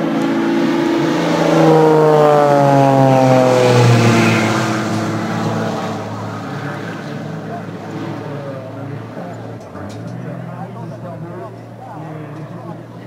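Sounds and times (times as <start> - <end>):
airplane engine passing by: 0.0 - 13.0.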